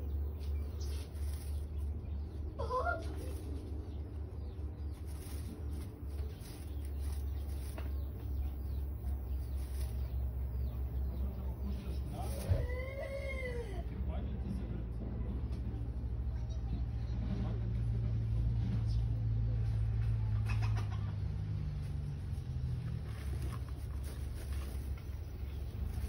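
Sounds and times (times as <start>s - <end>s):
hen clucking: 0.0s - 13.9s, 20.1s - 21.3s
hay rustling and crackling: 0.1s - 4.0s, 4.7s - 13.5s, 22.7s - 26.0s.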